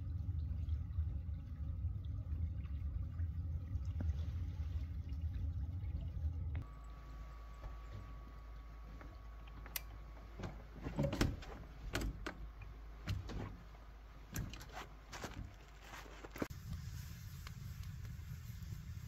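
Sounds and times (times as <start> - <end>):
gear being handled: 14.3 - 16.5.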